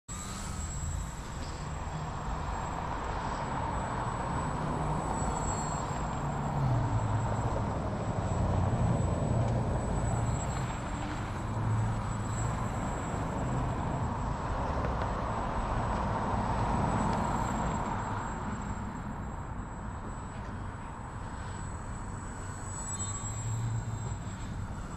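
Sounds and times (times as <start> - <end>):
model airplane motor buzzing: 0.1 - 14.8, 21.3 - 24.9.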